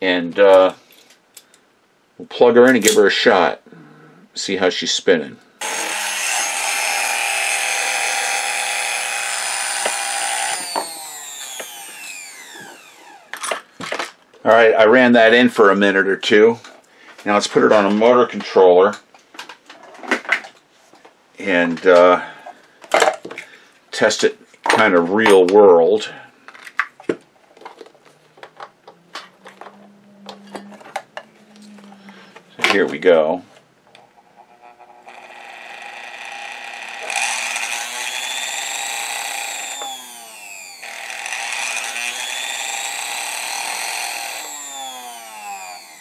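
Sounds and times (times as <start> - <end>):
sewing machine motor whining: 5.6 - 13.4, 34.4 - 46.0.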